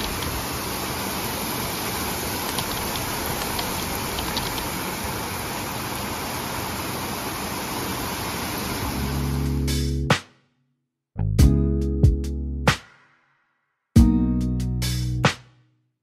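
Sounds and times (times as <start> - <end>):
heavy rain pouring: 0.0 - 9.7.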